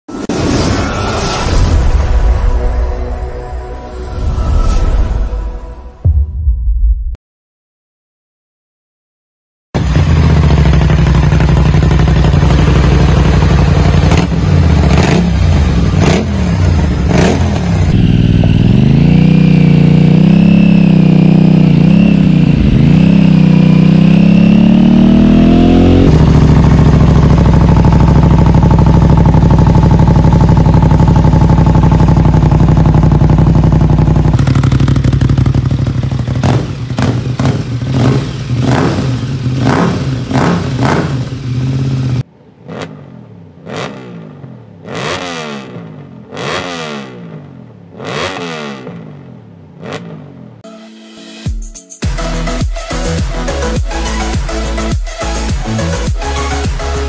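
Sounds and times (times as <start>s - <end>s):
motorcycle engine revving: 9.8s - 50.6s.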